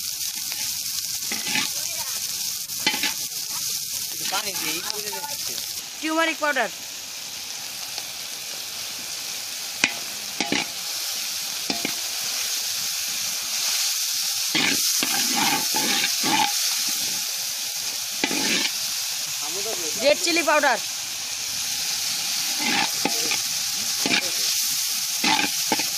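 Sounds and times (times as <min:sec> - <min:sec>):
food sizzling in hot oil: 0:00.0 - 0:25.9
metal spatula scraping pan: 0:01.3 - 0:01.8, 0:02.8 - 0:03.2, 0:14.6 - 0:17.0, 0:18.2 - 0:18.8, 0:22.5 - 0:23.4, 0:24.0 - 0:24.4, 0:25.2 - 0:25.9.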